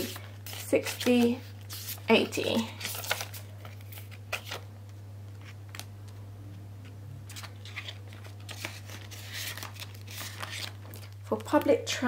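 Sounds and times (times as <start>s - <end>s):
banknotes crinkling: 0.0s - 4.7s, 7.2s - 11.9s
steady low hum: 0.0s - 12.0s.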